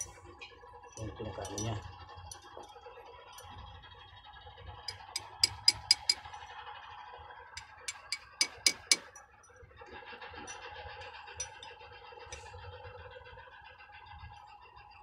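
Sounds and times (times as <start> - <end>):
light metal-on-metal taps: 1.0 - 2.7, 4.9 - 6.3, 7.9 - 9.2.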